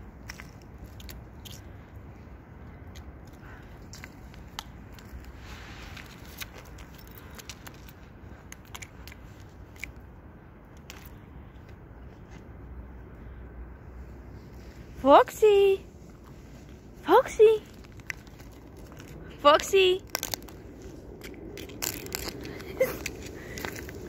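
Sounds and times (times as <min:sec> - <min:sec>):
thin ice crackling and crunching: 0:00.1 - 0:02.0, 0:02.8 - 0:10.0, 0:16.0 - 0:24.0.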